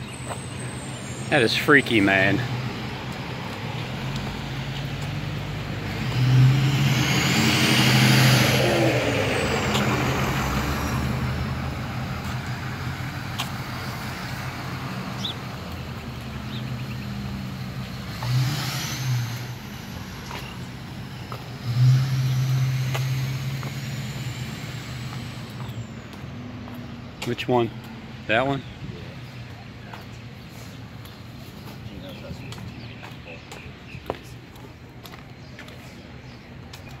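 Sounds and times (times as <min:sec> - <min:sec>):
vehicle passing close: 0:00.0 - 0:28.6.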